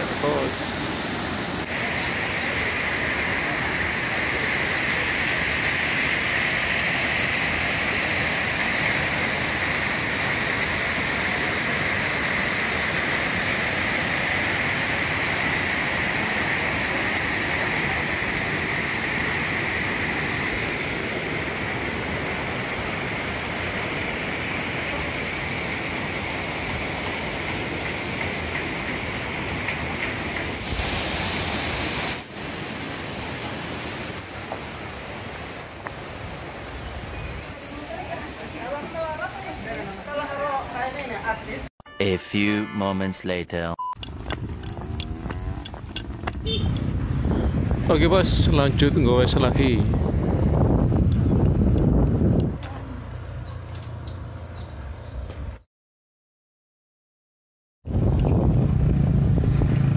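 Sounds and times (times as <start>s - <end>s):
waterfall and river rushing: 0.0s - 41.5s.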